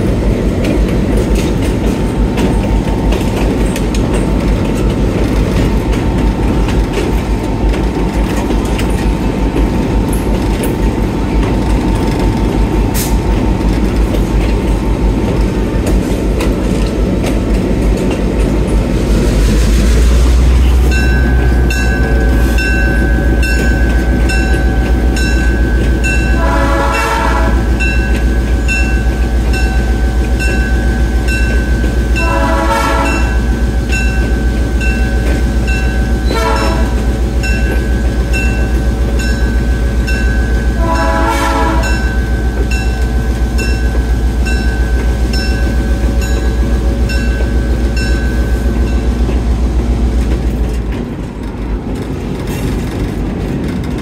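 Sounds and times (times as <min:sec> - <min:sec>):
diesel engine rumble: 0:00.0 - 0:54.0
locomotive bell ringing: 0:18.1 - 0:50.6
locomotive horn blasts: 0:26.0 - 0:28.1, 0:32.0 - 0:33.6, 0:36.2 - 0:37.4, 0:40.6 - 0:42.4.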